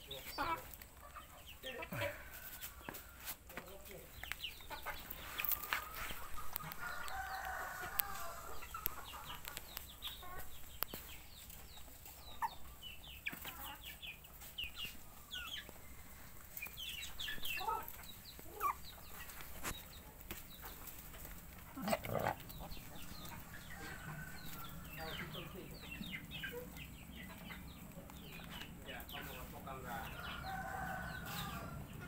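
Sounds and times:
chickens clucking and chirping: 0.0s - 32.0s
rooster crowing: 5.6s - 8.8s, 23.4s - 25.2s, 29.9s - 32.0s.

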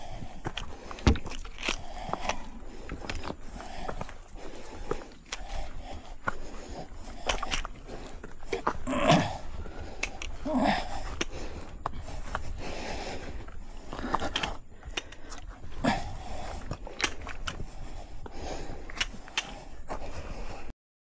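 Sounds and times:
panting breaths: 0.0s - 20.7s
steady low rumble: 0.0s - 20.7s
sharp clicks: 9.8s - 10.4s.

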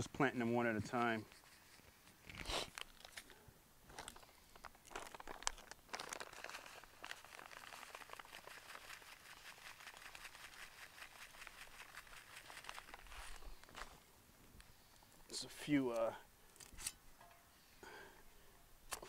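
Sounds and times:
gloved hands working soil: 0.0s - 14.0s
small crackles: 0.9s - 15.2s.

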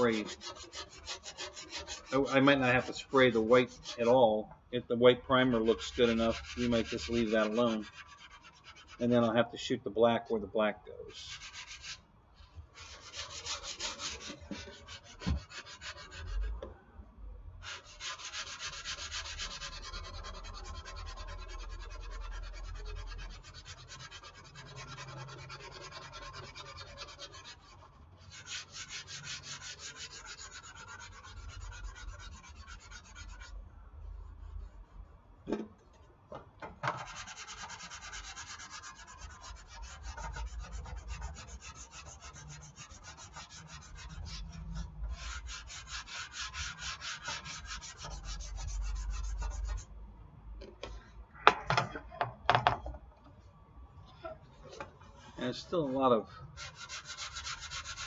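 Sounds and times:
sandpaper scratching strokes: 0.0s - 4.2s, 5.4s - 9.0s, 11.1s - 12.0s, 12.8s - 16.5s, 17.6s - 33.6s, 37.0s - 49.9s, 55.2s - 58.0s.

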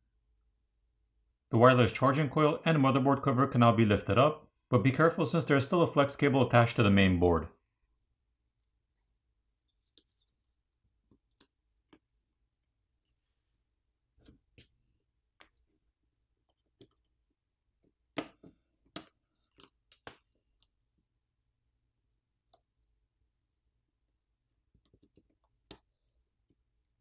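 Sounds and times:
faint clicks and taps: 8.6s - 12.2s, 24.5s - 26.6s.

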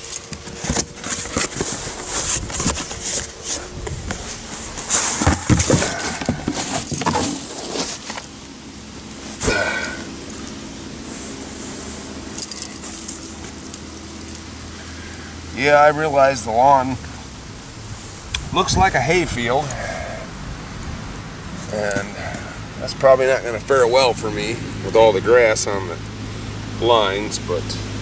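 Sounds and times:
nylon parachute rustling: 0.0s - 15.0s
light clinking: 12.3s - 15.0s.

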